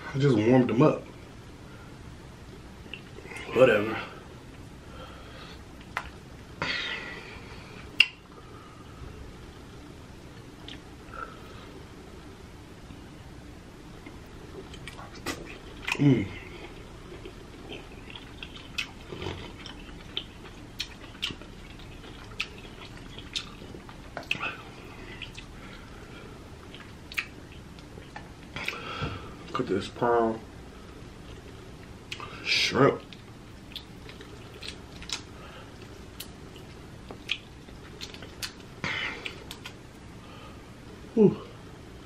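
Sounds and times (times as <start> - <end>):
low steady background: 0.0 - 42.0
wet chewing and mouth smacks: 5.8 - 6.2, 7.9 - 8.2, 10.4 - 10.9, 14.0 - 25.8, 26.6 - 28.8, 33.0 - 39.8.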